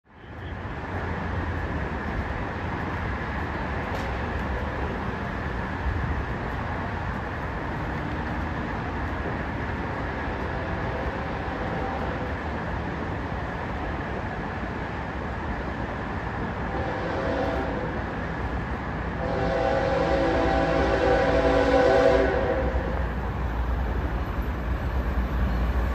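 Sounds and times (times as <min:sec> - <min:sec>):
distant locomotive rumbling: 0:00.1 - 0:25.9
locomotive horn: 0:16.7 - 0:18.0, 0:19.2 - 0:23.0.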